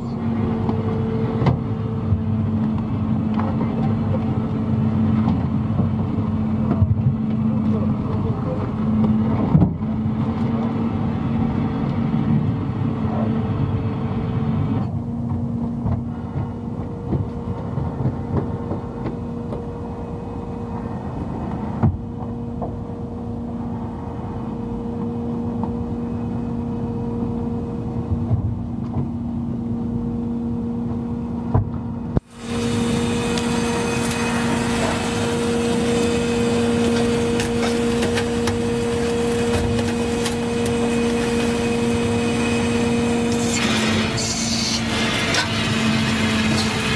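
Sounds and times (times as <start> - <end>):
boat engine humming: 0.0 - 46.9
hiss: 43.2 - 46.9.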